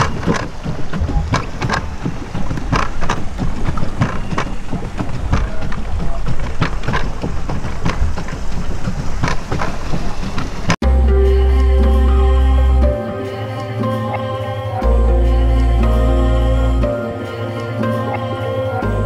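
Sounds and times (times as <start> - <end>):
water splashing against boat: 0.0 - 10.8
wind buffeting microphone: 0.0 - 10.8.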